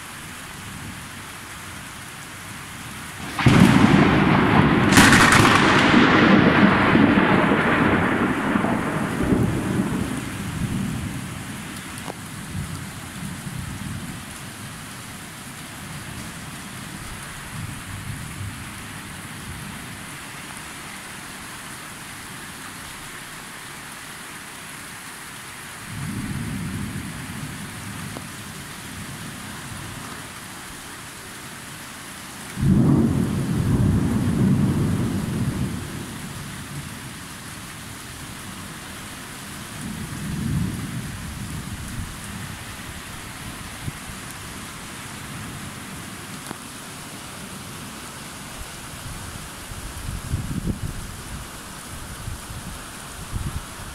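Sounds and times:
steady rain: 0.0s - 53.9s
loud thunderclap: 3.2s - 11.0s, 32.6s - 35.8s
thunder rumbling: 3.2s - 12.8s, 32.6s - 36.9s.

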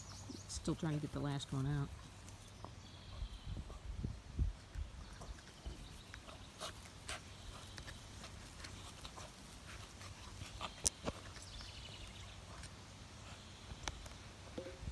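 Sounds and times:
rustles in grass: 0.0s - 14.9s.

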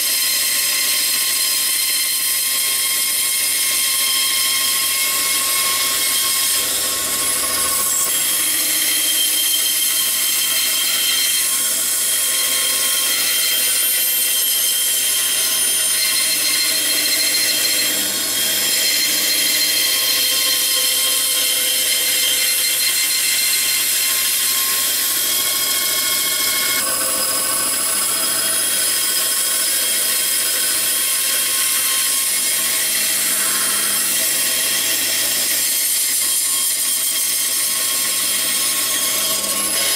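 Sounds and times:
bandsaw cutting wood: 0.0s - 39.9s.

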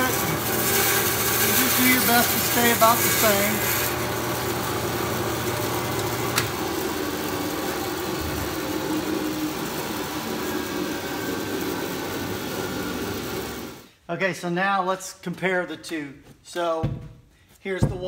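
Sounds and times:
bandsaw motor and blade hum: 0.0s - 13.9s.

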